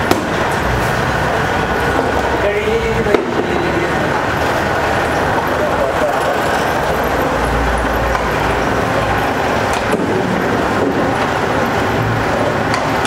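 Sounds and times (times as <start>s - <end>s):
sharp knocks: 0.0s - 0.4s, 9.7s - 11.3s
machinery running: 0.0s - 13.0s.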